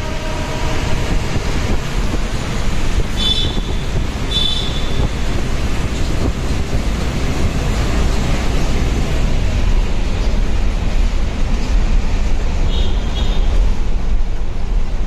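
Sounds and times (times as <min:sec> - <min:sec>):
wind on microphone: 0:00.0 - 0:08.7
bus engine and tyre rush: 0:00.0 - 0:15.0.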